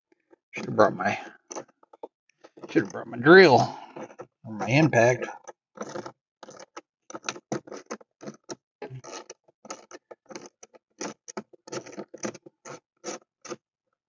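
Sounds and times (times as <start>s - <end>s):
hand ratchet clicking: 9.0s - 12.4s.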